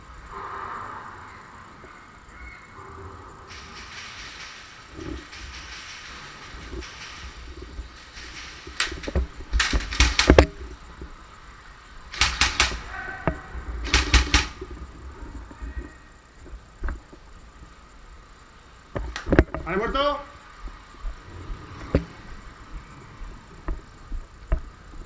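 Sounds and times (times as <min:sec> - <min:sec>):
airsoft guns firing: 0:03.5 - 0:10.7, 0:12.1 - 0:14.8.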